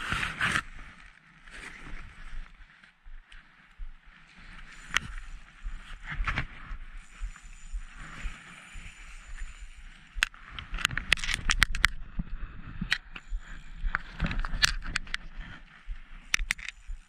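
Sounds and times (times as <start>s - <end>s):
fishing reel clicks and knocks: 7.2s - 12.0s, 12.9s - 15.3s, 16.3s - 17.0s.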